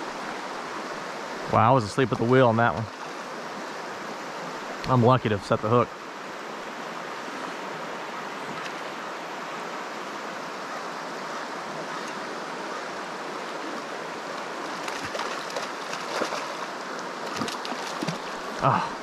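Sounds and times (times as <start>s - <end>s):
river rushing over rocks: 0.0s - 19.0s
fish splashing: 14.6s - 18.6s.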